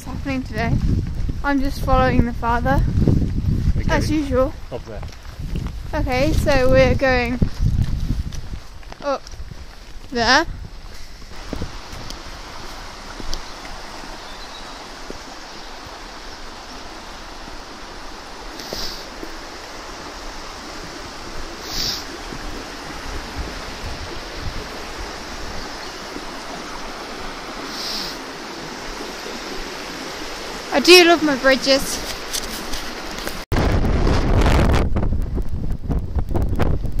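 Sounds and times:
stream rushing over rocks: 0:09.0 - 0:33.5.

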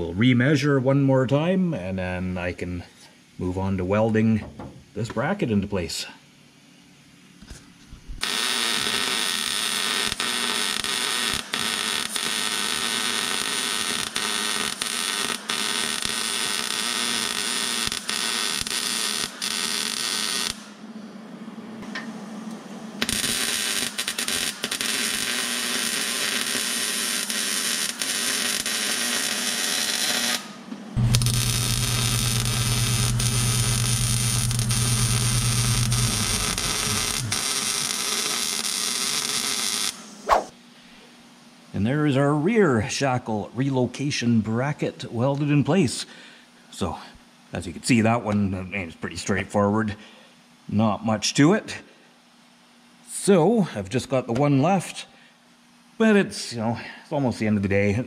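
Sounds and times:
welding arc crackling and buzzing: 0:08.0 - 0:20.8, 0:23.0 - 0:40.2
low hum: 0:31.0 - 0:37.4.

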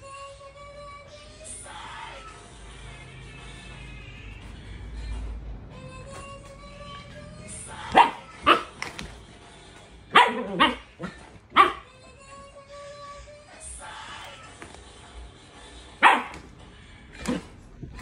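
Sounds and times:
puppy barking: 0:07.8 - 0:09.1, 0:10.1 - 0:11.9, 0:16.0 - 0:16.5.

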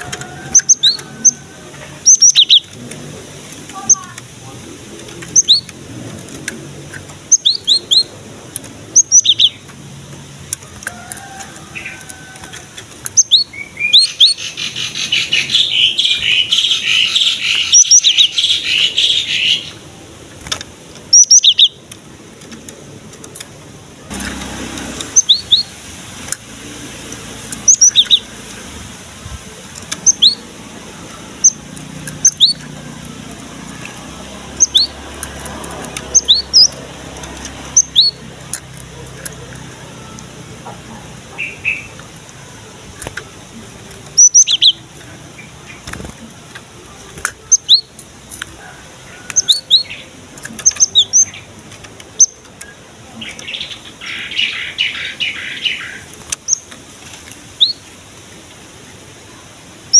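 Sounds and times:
bird high chirps: 0:00.0 - 0:02.8, 0:03.7 - 0:04.2, 0:05.2 - 0:05.8, 0:07.2 - 0:08.2, 0:08.8 - 0:09.7, 0:11.6 - 0:19.8, 0:21.1 - 0:21.8, 0:25.0 - 0:25.8, 0:27.5 - 0:28.6, 0:29.9 - 0:30.5, 0:31.1 - 0:42.1, 0:44.1 - 0:46.0, 0:47.4 - 0:48.0, 0:49.1 - 0:56.7, 0:57.5 - 0:57.9
bird rapid chattering: 0:00.0 - 0:22.1, 0:25.0 - 0:25.8, 0:26.9 - 0:28.7, 0:29.4 - 0:56.8.

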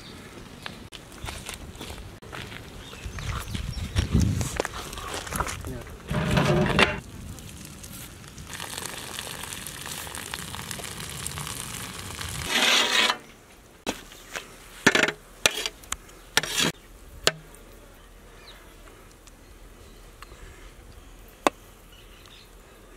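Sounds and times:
water pouring and splashing: 0:07.0 - 0:13.1.

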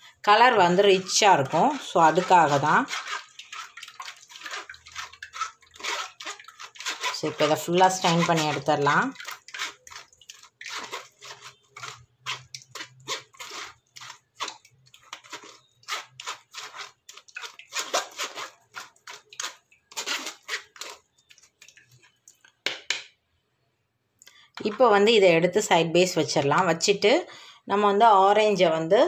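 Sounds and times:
wet pulp squelching through strainer: 0:00.1 - 0:22.6
spoon scraping plastic strainer: 0:00.3 - 0:22.2, 0:24.6 - 0:25.1.

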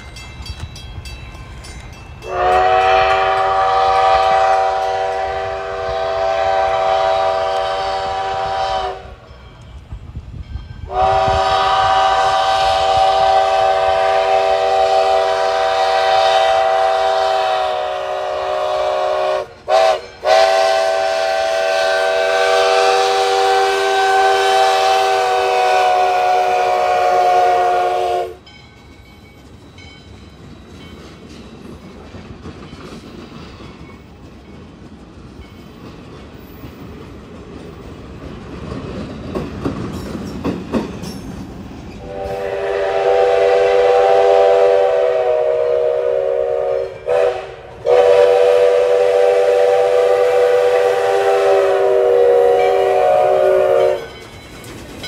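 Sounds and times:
train wheels clicking on rails: 0:00.0 - 0:55.0
steam whistle blast: 0:02.2 - 0:09.2, 0:10.9 - 0:28.4, 0:42.0 - 0:54.1.

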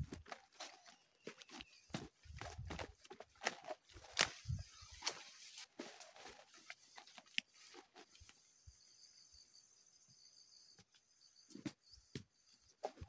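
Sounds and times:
footsteps through dry leaves and twigs: 0:00.0 - 0:08.3
insect drone: 0:04.0 - 0:13.0.

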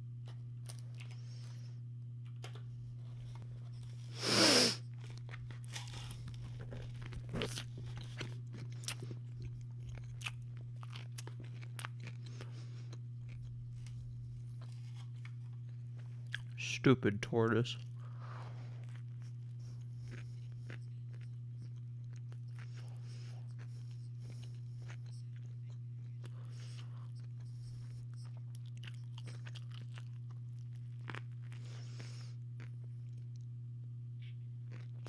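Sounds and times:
low electrical hum: 0:00.0 - 0:35.0
chewing with small crunches: 0:00.2 - 0:04.2, 0:04.8 - 0:16.8, 0:17.6 - 0:35.0
loud crunchy bite: 0:04.2 - 0:12.5.

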